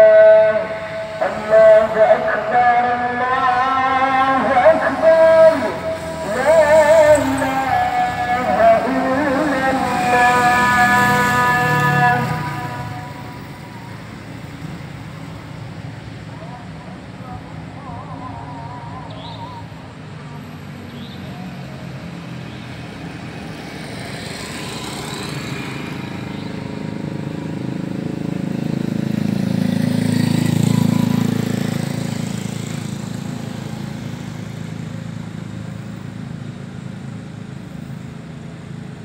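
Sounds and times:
vehicle passing by: 0.0s - 39.0s.

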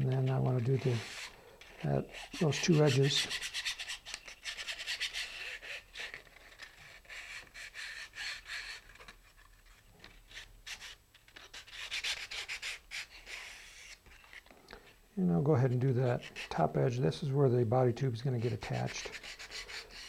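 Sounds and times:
sandpaper rubbing on wood: 0.2s - 6.1s, 10.8s - 14.0s, 18.4s - 20.0s.

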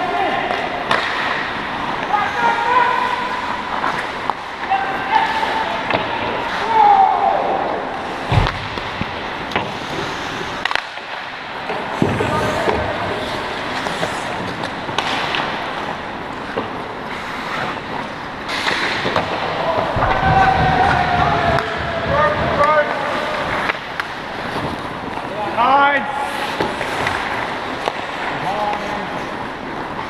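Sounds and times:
hockey stick and puck knocks: 0.5s - 1.5s, 8.3s - 9.8s, 18.5s - 23.0s
skate blades scraping ice: 8.0s - 19.5s, 20.1s - 30.0s.

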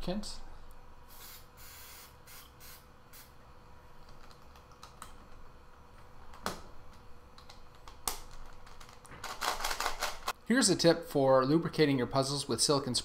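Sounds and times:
aerosol spray hissing: 1.1s - 3.3s.

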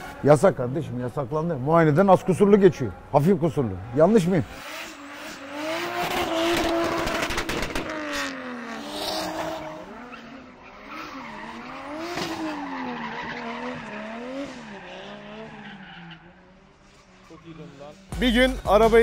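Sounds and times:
car engine revving: 3.7s - 18.2s
rapid exhaust pops: 6.5s - 8.0s
tyre squeal: 9.1s - 18.0s.

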